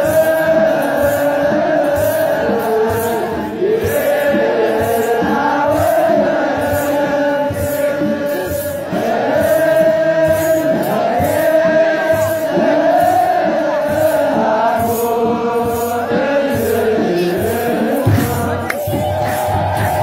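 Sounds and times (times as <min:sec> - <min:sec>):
clergy chanting together: 0:00.0 - 0:20.0
rattling beat: 0:00.0 - 0:20.0.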